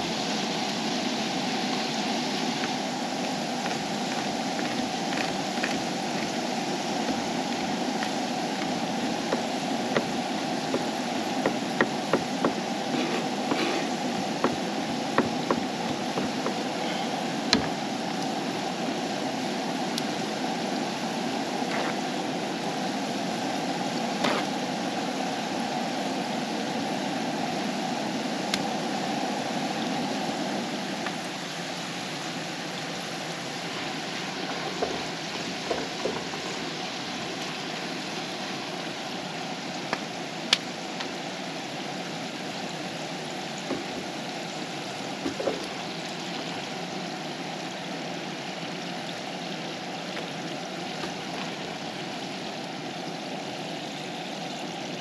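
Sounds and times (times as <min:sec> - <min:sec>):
knife chopping on wooden board: 0:10.7 - 0:14.6.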